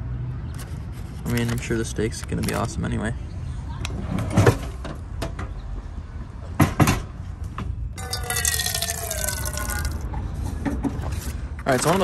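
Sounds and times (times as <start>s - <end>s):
water pouring into pot: 8.0s - 10.0s.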